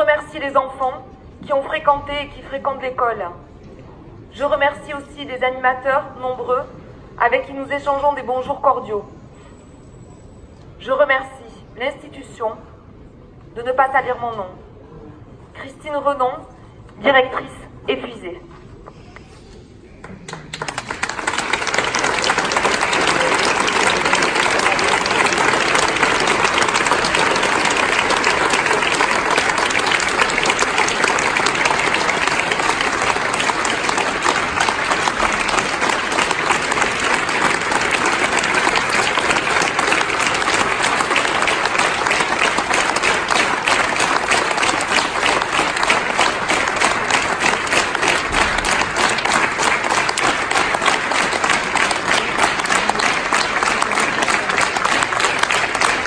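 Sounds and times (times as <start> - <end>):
crowd applauding: 20.0 - 56.0.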